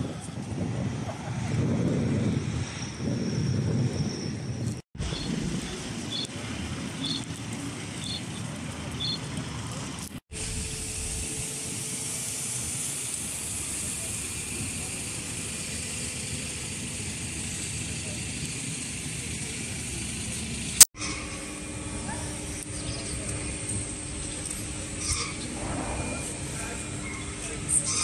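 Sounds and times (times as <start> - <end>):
murmur of distant voices: 5.3 - 10.1, 13.5 - 20.7, 21.4 - 28.0
outdoor hiss: 10.4 - 21.9.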